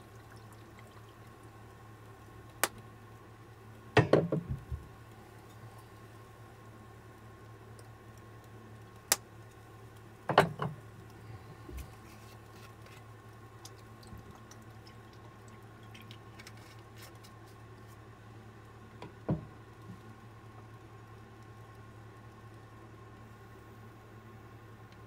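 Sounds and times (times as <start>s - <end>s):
low steady hum: 0.0s - 25.0s
glass bottle knocks: 4.0s - 4.6s.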